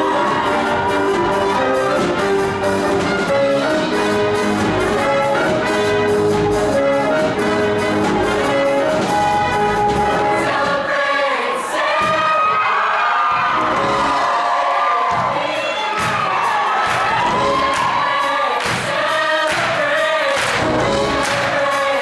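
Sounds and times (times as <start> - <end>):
steady drum beat: 0.0 - 10.9, 15.0 - 22.0
brass playing: 0.0 - 11.1
choir singing: 0.0 - 22.0.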